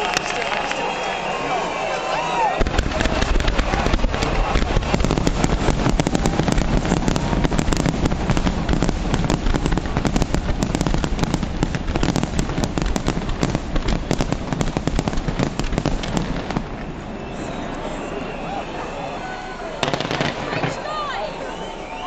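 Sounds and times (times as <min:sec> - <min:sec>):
fireworks bangs and crackles: 0:02.6 - 0:18.5, 0:19.8 - 0:21.0.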